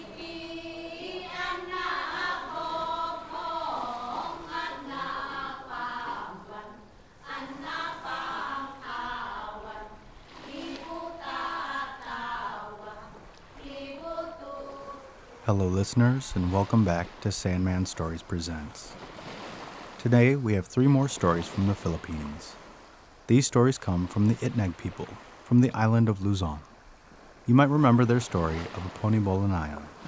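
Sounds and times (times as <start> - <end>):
group singing a chant: 0.0 - 16.1.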